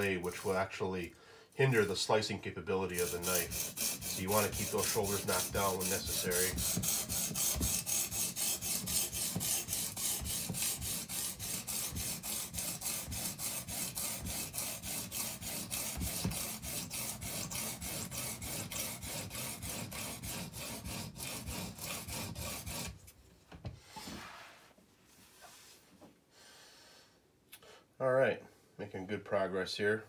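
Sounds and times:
stone rasping along knife blade: 2.9s - 23.0s.

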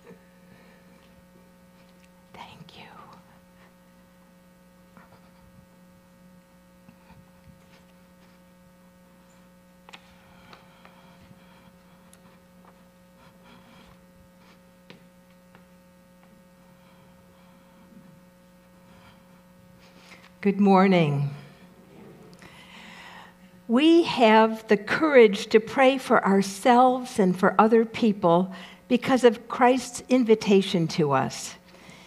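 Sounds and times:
electrical mains hum: 0.0s - 32.0s
faint ticks and rustles: 0.9s - 3.8s, 6.8s - 20.4s.

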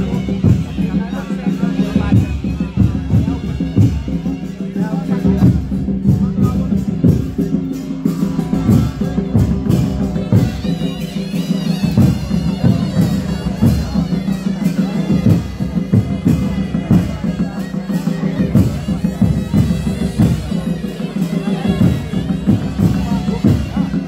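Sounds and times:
reed pipe melody: 0.0s - 24.0s
steady drumming: 0.0s - 24.0s.

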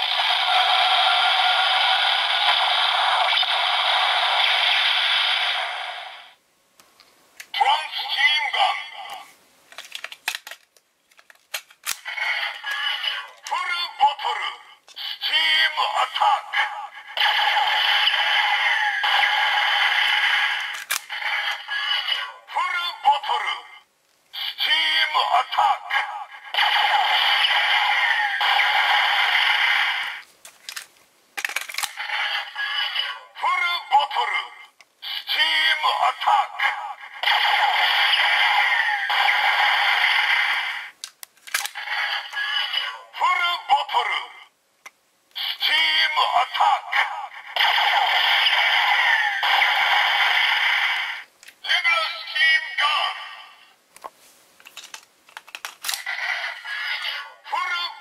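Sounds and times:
toy electronic sound effect: 12.1s - 14.0s, 15.0s - 22.3s, 32.0s - 33.2s, 41.8s - 42.9s, 45.4s - 53.2s, 56.0s - 58.0s.

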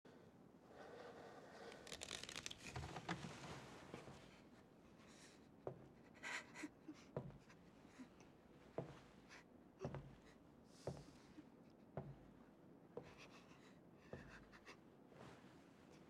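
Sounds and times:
cloth rustling: 1.8s - 4.2s.

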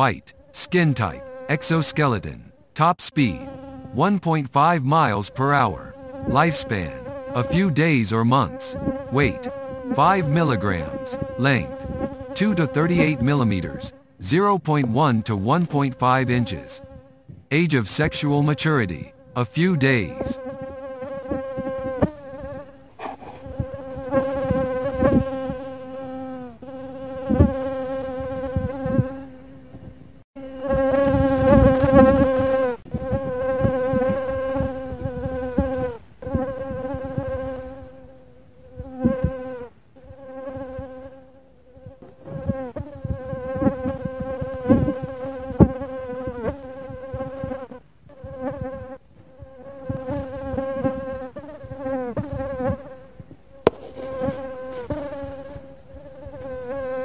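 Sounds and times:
mosquito whining: 0.0s - 4.1s, 5.1s - 14.2s, 38.8s - 57.0s.

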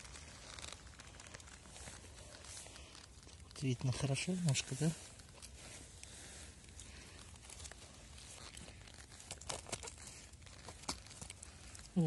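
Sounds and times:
handling rustle near microphone: 0.0s - 12.0s.

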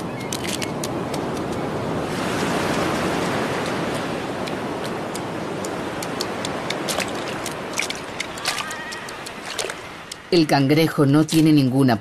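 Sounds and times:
surf washing over sand: 0.0s - 10.4s.

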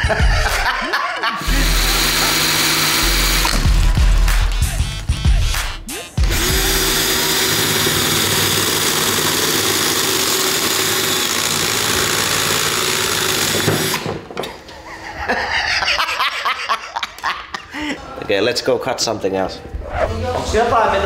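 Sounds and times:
cordless drill whirring: 1.4s - 3.8s, 6.2s - 14.1s.

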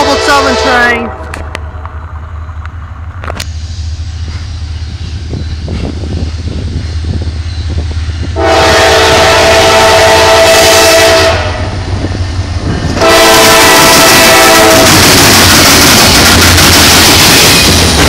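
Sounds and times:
locomotive air horn blasts: 0.0s - 1.3s, 8.4s - 11.7s, 13.0s - 15.1s.

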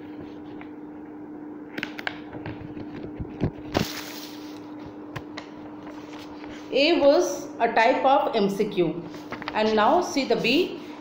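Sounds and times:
book pages turning: 5.8s - 6.6s, 9.1s - 9.8s.

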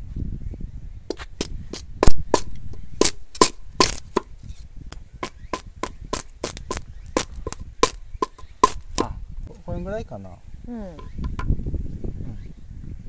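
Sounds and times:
bamboo cracking and snapping: 6.2s - 9.1s.

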